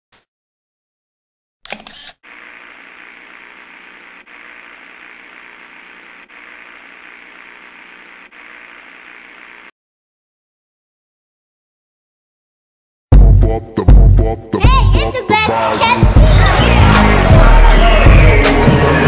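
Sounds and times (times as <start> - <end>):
static noise with faint hum: 2.3 - 9.7.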